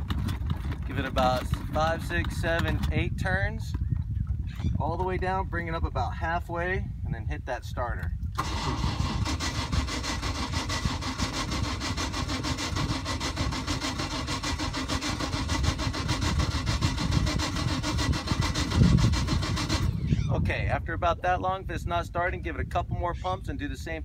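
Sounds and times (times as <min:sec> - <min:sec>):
boat engine cranking on starter: 0:08.3 - 0:20.2.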